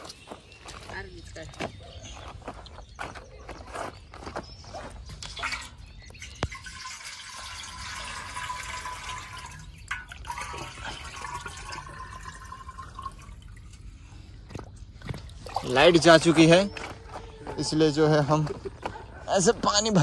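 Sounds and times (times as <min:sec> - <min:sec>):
water gurgling into a pot: 0:05.2 - 0:13.9.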